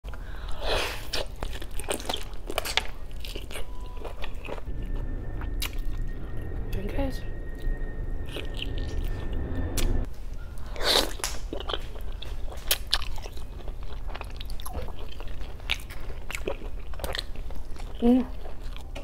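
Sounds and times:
biting and chewing: 0.8 - 4.7, 10.8 - 19.0.

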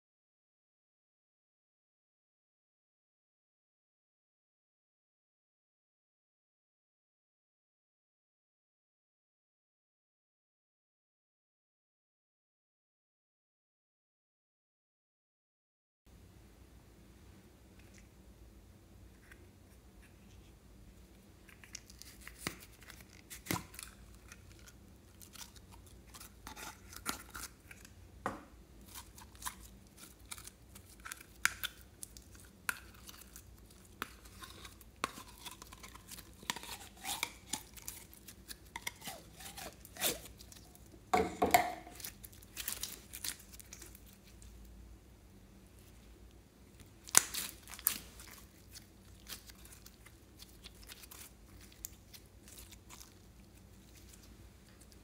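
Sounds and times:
slime crackling and clicking: 47.1 - 48.1.

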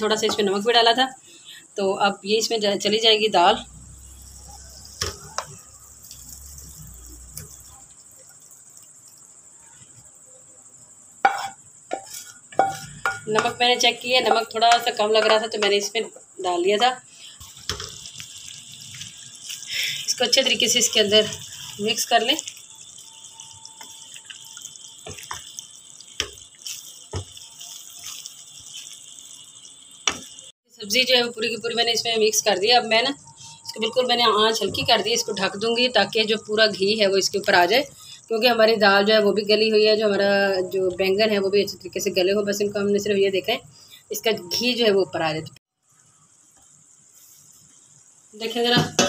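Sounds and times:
spoon stirring thick food in pan: 11.2 - 13.6, 17.3 - 19.7, 20.3 - 30.5.

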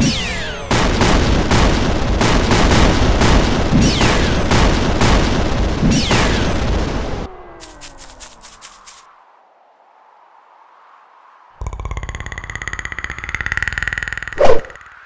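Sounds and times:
explosions and blasts: 0.0 - 7.8.

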